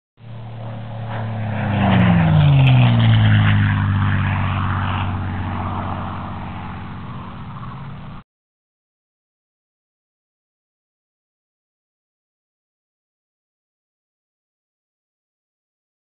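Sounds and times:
propeller aircraft flying past: 0.2 - 8.2.

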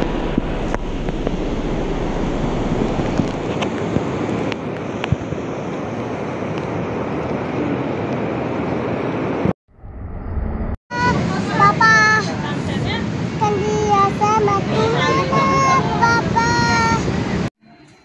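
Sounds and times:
wind on microphone: 0.0 - 9.5.

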